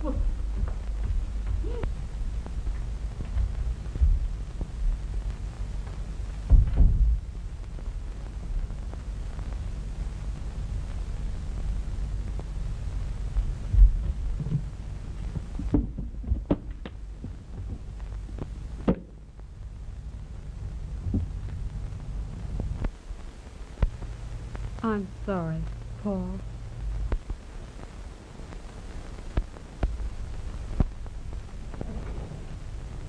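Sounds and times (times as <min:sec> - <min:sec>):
low hum and rumble: 0:00.0 - 0:33.0
heavy thump: 0:06.5 - 0:07.2.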